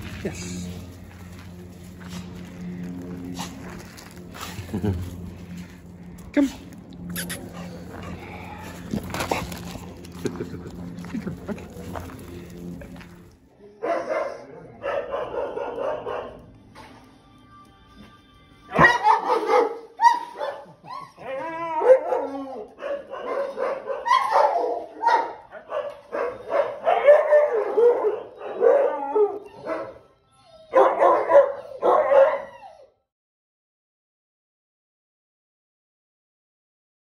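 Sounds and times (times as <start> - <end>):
dogs barking: 13.8 - 16.6, 18.6 - 32.8
dog howling: 18.7 - 33.0.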